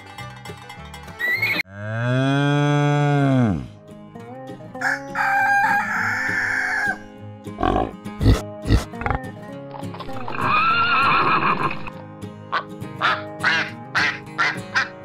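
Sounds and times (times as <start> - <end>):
rooster crowing: 4.8 - 7.1
pig grunts: 7.6 - 9.3.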